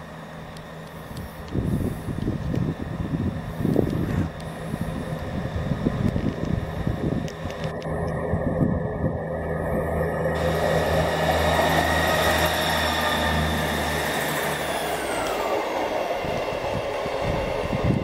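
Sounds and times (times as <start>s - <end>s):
diesel train engine hum: 0.0s - 18.0s
train whine dropping in pitch: 6.6s - 18.0s.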